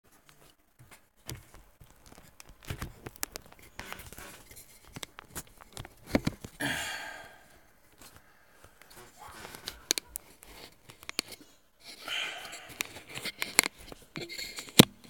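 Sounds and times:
rubbing noise: 8.9 - 13.5.

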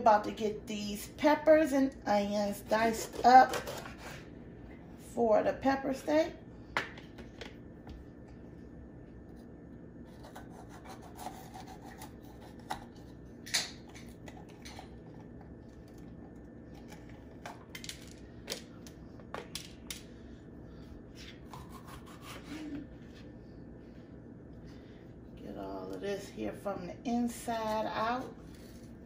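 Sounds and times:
steady low hum: 0.0 - 29.0
soft cutting sounds: 9.3 - 13.1, 21.1 - 23.3.

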